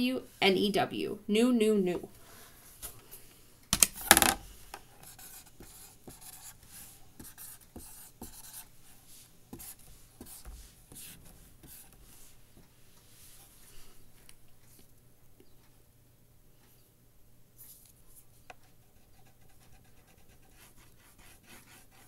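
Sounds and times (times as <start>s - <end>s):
card rustling and knocking: 3.7s - 4.4s
marker writing on paper: 5.0s - 8.7s, 9.5s - 12.3s.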